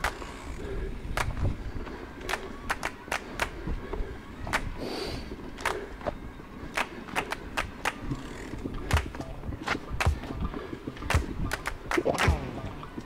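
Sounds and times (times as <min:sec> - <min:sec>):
wind: 0:00.0 - 0:13.0
bike knocks and rattles: 0:07.6 - 0:13.0.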